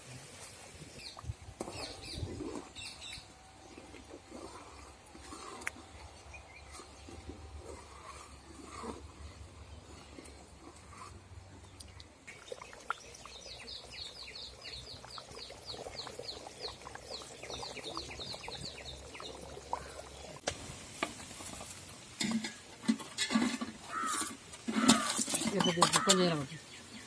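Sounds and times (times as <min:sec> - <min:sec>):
metal spatula scraping pots: 0:21.0 - 0:26.6.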